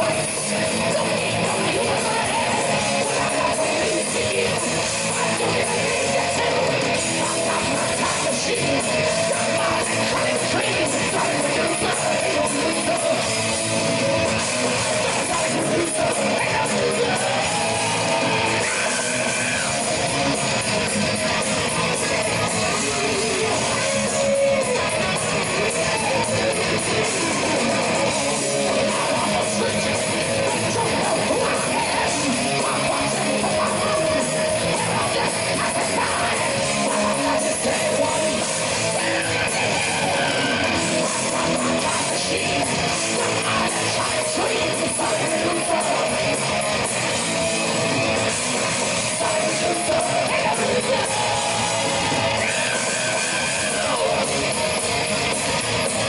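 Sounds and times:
metal band playing live: 0.0 - 56.0.

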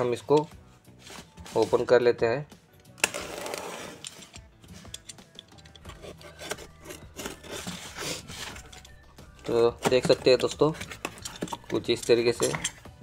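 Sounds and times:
knife cutting cardboard and tape: 3.0 - 8.9.

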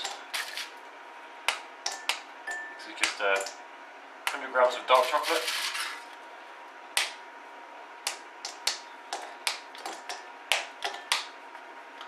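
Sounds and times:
chocolate snapping: 6.9 - 7.2, 8.0 - 11.3.

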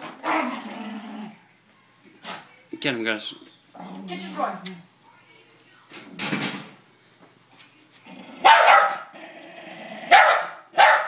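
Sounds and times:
dog barking: 8.4 - 9.1, 10.1 - 11.0.

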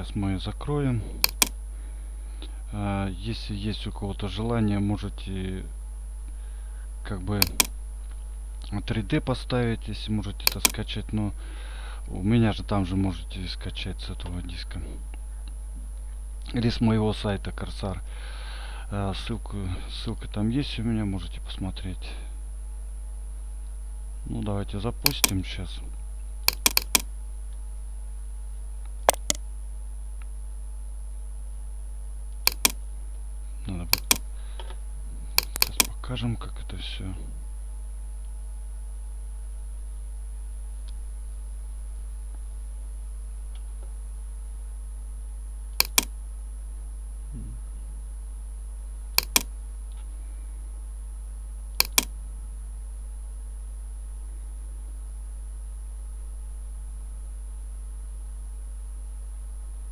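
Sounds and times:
steady low hum: 0.0 - 59.9
computer mouse clicking: 1.2 - 1.6, 7.4 - 7.7, 10.4 - 10.8, 25.0 - 25.4, 26.4 - 27.1, 29.0 - 29.4, 32.5 - 32.8, 33.9 - 34.2, 35.4 - 35.9, 45.8 - 46.1, 49.2 - 49.5, 51.8 - 52.1.

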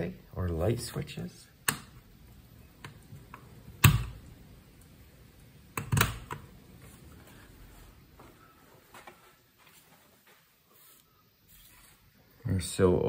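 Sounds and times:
light switches clicking: 1.6 - 2.1, 2.8 - 6.5.

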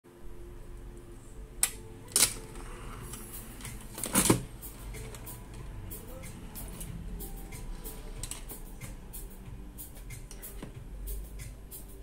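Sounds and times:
low steady hum: 0.1 - 12.0.

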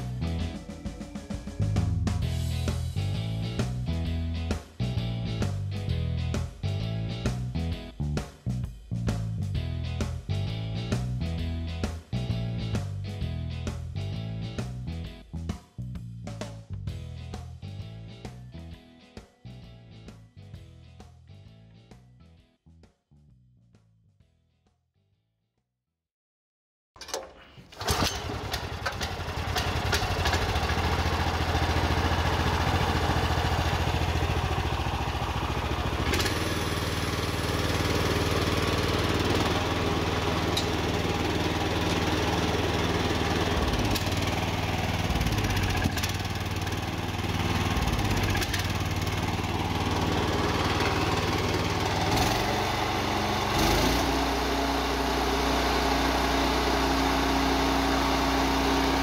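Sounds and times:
engine running steadily: 27.8 - 59.0
cutter wheel spinning: 37.8 - 54.2.

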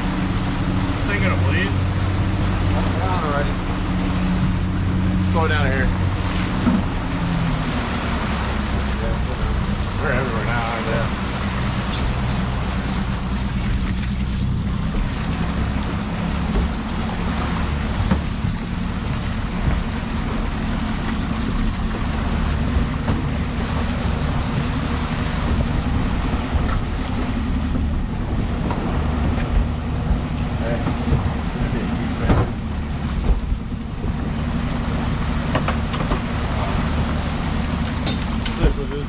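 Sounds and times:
outboard motor running: 0.0 - 39.0
wake water splashing: 0.0 - 39.0
wind rushing: 22.0 - 34.5.

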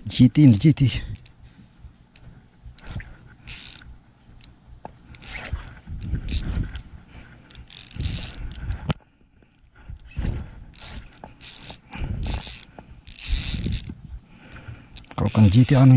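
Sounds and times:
fishing reel clicking and whirring: 0.4 - 1.4, 2.1 - 4.5, 5.1 - 6.8, 7.5 - 8.9, 10.7 - 15.9.

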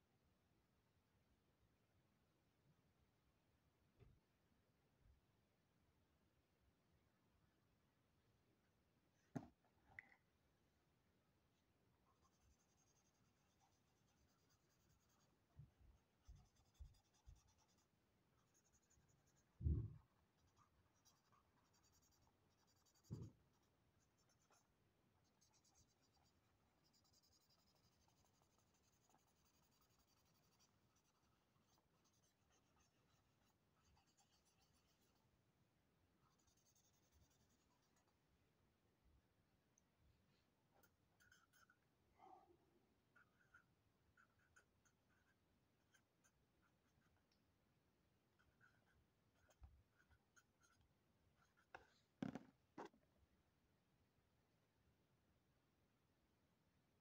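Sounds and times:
soft thumps on a pad: 9.3 - 9.6, 19.6 - 20.0, 23.1 - 23.4, 52.2 - 52.5
marker pen scratching on paper: 12.2 - 15.4, 16.0 - 19.6, 20.2 - 35.2, 36.2 - 38.2, 40.8 - 41.8, 43.1 - 47.3, 48.4 - 52.9.

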